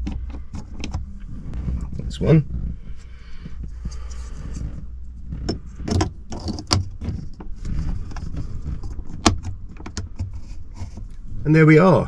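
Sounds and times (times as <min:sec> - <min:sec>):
plastic clicks and knocks: 0:00.0 - 0:01.1
low steady rumble: 0:00.0 - 0:12.0.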